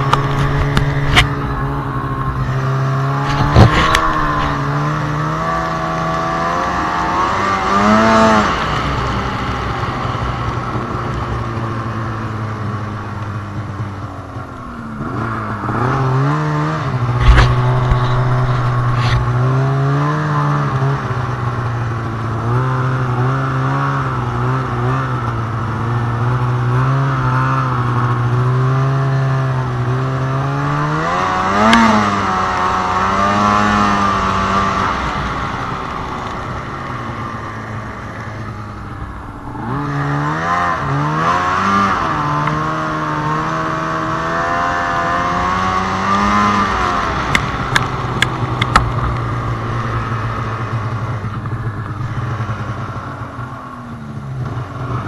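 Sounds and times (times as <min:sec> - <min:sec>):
snowmobile engine revving: 0:00.0 - 0:53.0
sharp thump: 0:17.2 - 0:19.4.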